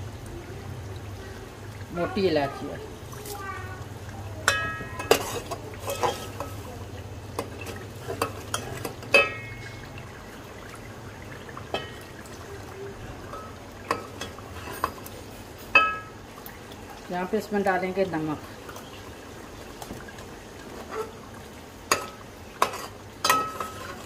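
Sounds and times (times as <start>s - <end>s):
low frying sizzle: 0.0s - 24.0s
metal spoon scraping and clinking pot: 4.4s - 6.7s, 7.4s - 9.8s, 21.9s - 24.0s.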